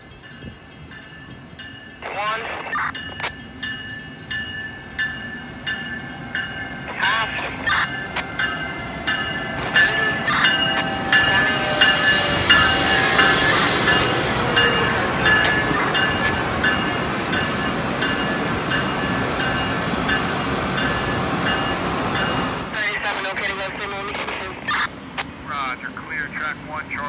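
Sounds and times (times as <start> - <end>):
railroad crossing bell dinging: 0.0 - 22.9
train passing close: 0.0 - 27.0
locomotive hiss: 6.3 - 17.6.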